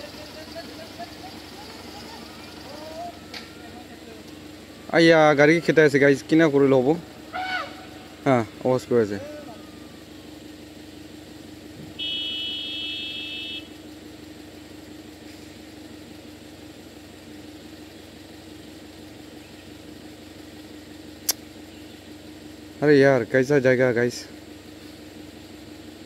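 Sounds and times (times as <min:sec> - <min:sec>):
vehicle idling: 0:00.0 - 0:26.0
loud high beep tone: 0:12.0 - 0:13.7
sharp click: 0:21.2 - 0:21.5.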